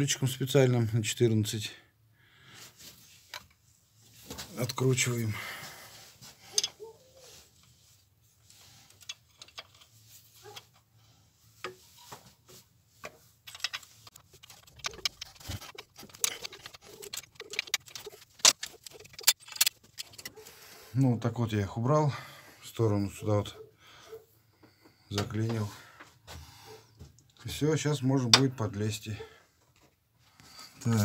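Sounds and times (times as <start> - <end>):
wrench clicking on metal nuts: 13.5 - 20.3.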